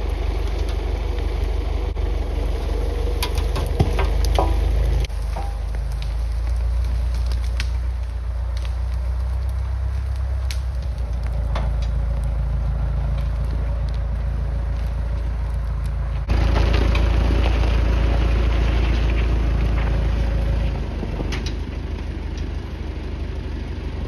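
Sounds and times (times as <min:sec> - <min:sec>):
logs dragging through brush: 0:00.0 - 0:22.6
tractor engine running: 0:00.0 - 0:24.0
twigs snapping: 0:03.1 - 0:17.1.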